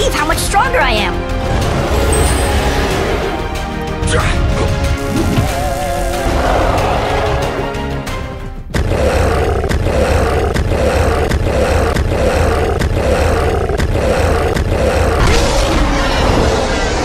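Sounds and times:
gorilla roar: 5.2 - 7.9, 8.7 - 15.7.

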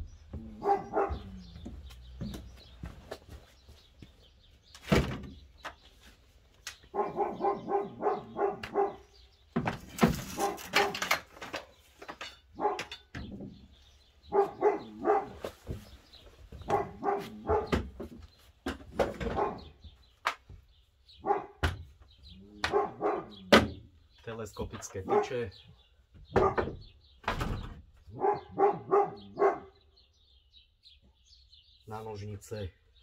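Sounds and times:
dog barking: 0.4 - 1.7, 6.9 - 9.2, 10.3 - 11.1, 12.6 - 13.0, 14.3 - 15.8, 16.6 - 17.9, 19.2 - 19.8, 21.2 - 21.6, 22.6 - 23.6, 25.0 - 25.5, 26.3 - 26.7, 28.1 - 29.8
rustling clatter: 9.8 - 13.1.

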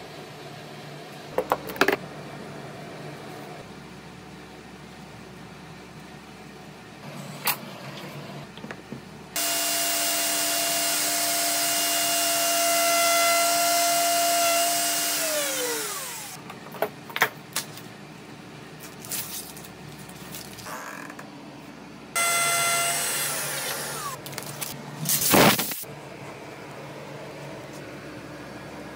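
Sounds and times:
router whining: 9.4 - 16.4, 22.2 - 24.4.

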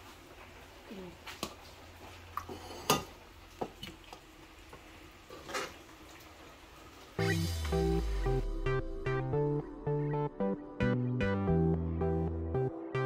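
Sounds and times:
electronic background music: 7.2 - 13.0.

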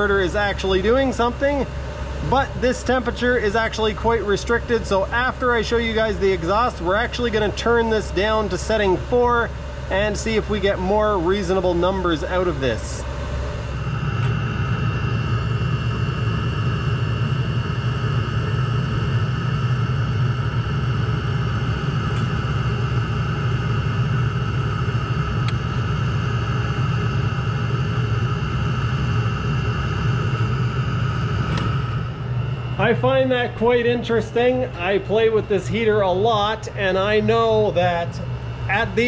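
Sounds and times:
heater exhaust low rumble: 0.0 - 39.0
thin steady whine: 0.0 - 39.0.

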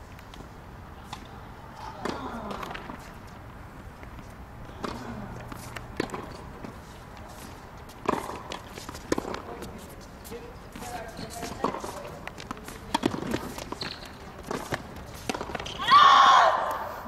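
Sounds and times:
tennis ball struck by rackets: 1.1 - 3.1, 4.0 - 9.8, 10.8 - 15.7.

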